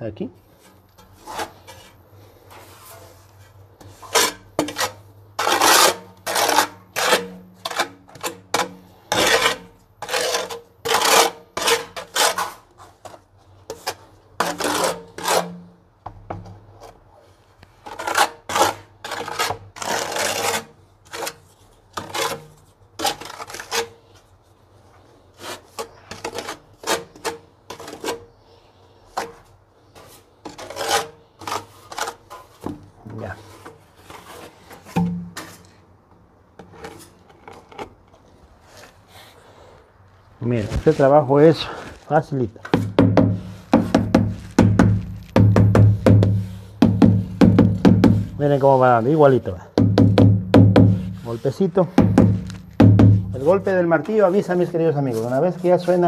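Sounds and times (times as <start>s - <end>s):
trowel scraping tile adhesive: 3.8s - 13.0s, 13.7s - 15.7s, 17.8s - 24.2s, 25.3s - 28.3s, 28.9s - 32.6s, 50.8s - 56.0s.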